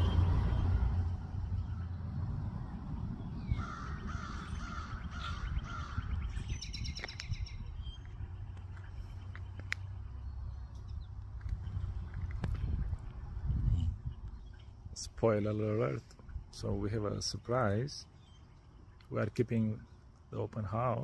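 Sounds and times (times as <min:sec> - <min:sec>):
low rumble: 0:00.0 - 0:14.9
crow cawing: 0:03.5 - 0:06.1.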